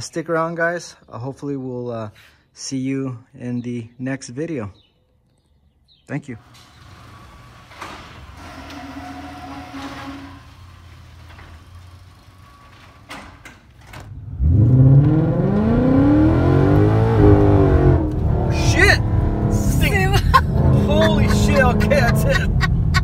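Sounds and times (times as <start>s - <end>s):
car engine accelerating hard: 14.2s - 22.9s.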